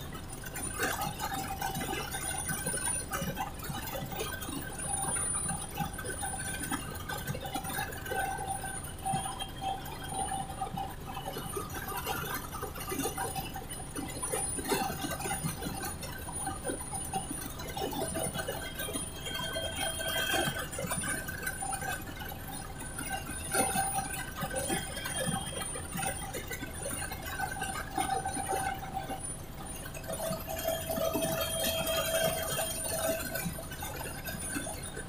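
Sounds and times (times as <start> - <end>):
high whining tones: 15.8 - 35.0.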